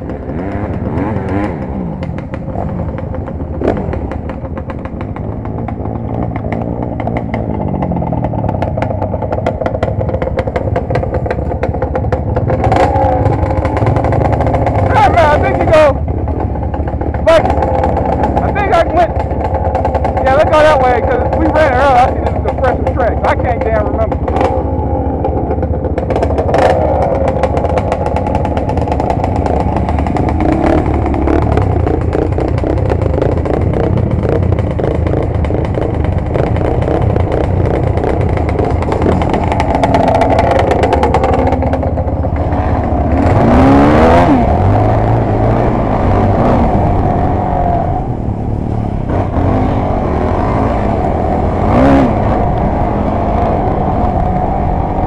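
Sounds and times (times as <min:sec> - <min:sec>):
off-road engines revving: 0:00.0 - 0:55.0
small rattles: 0:02.0 - 0:43.0.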